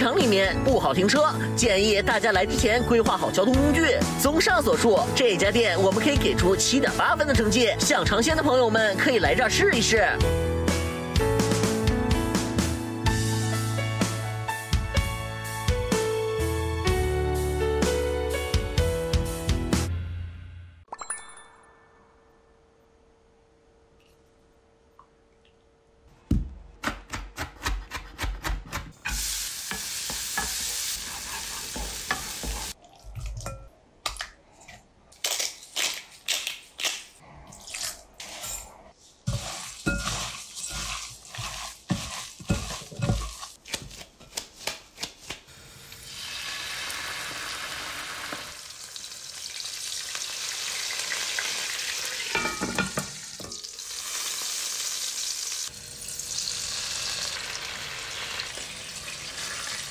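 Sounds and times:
food sizzling in a pan: 29.1 - 32.8, 39.3 - 43.6, 45.6 - 59.9
utensils clattering on cookware: 52.3 - 53.6.

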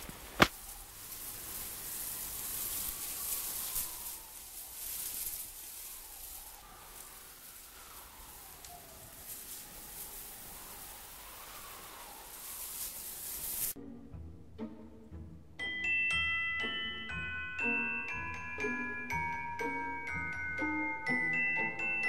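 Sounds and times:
steady low hiss: 0.0 - 22.0
faint wavering high tones: 15.6 - 22.0.

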